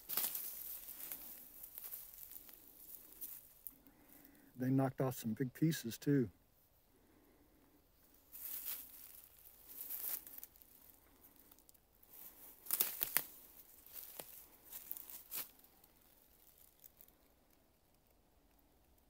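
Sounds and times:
footsteps crunching dry leaves: 0.0s - 3.8s, 8.2s - 17.1s.

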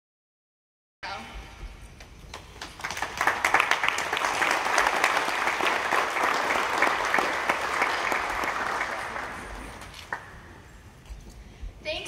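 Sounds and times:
audience applauding: 2.4s - 10.7s.

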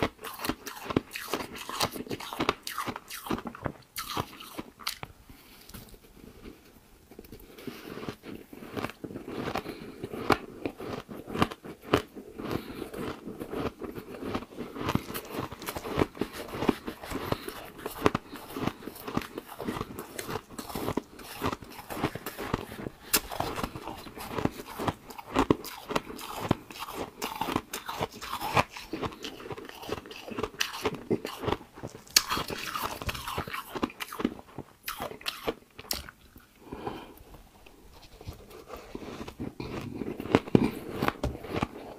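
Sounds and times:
person chewing ice: 0.0s - 5.2s, 7.2s - 41.9s.

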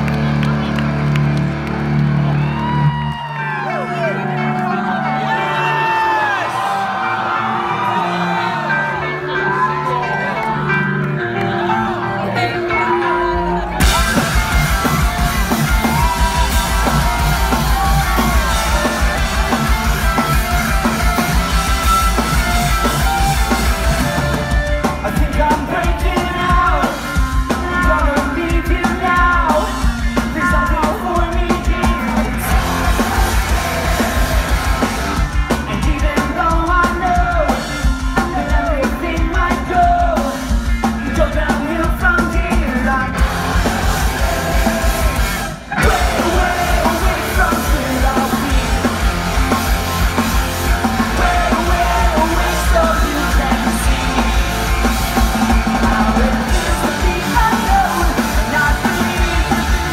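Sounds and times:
pop-punk band playing live: 0.0s - 59.9s
man singing lead vocal: 4.8s - 21.3s, 22.9s - 59.9s.

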